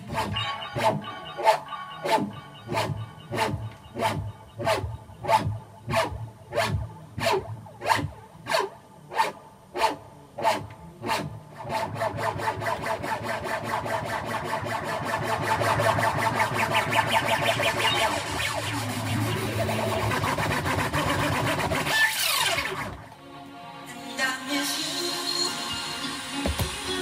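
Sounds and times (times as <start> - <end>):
electronic dance music: 0.0 - 6.4, 13.2 - 27.0.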